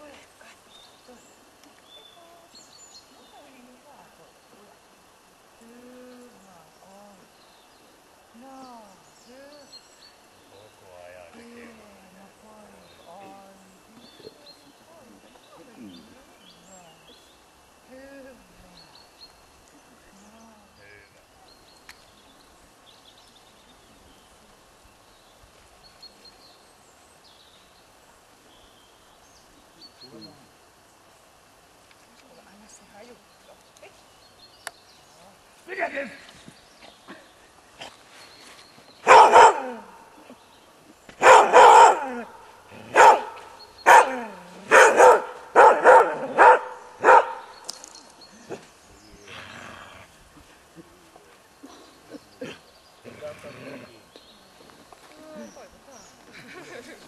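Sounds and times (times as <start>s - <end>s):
faint steady background noise: 0.0s - 57.0s
dog barking loudly: 39.0s - 39.9s, 41.2s - 47.5s.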